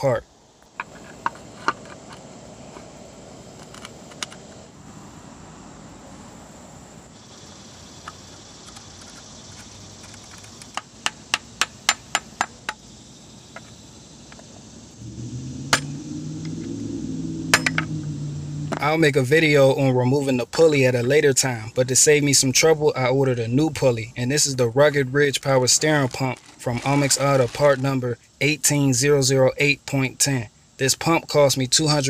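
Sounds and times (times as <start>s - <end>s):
low hum: 14.9s - 19.3s.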